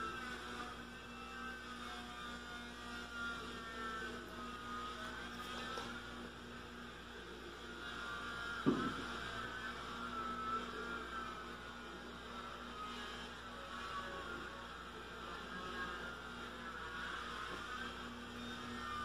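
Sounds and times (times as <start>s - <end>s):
low electrical hum: 0.0s - 19.0s
short knock: 8.7s - 9.0s.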